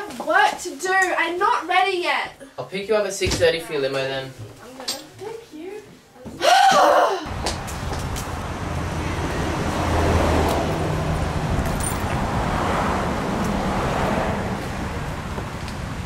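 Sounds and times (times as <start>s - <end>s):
road vehicles passing: 7.3s - 16.0s.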